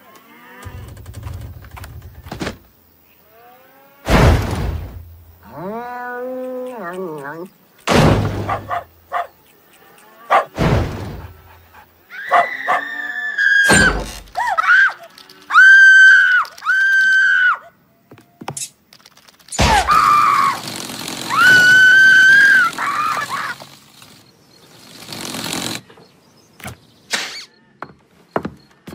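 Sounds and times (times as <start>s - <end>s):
heavy thuds: 4.1s - 5.4s, 7.8s - 8.8s, 10.5s - 11.5s
high-pitched squealing cries: 12.1s - 17.7s, 19.6s - 23.9s.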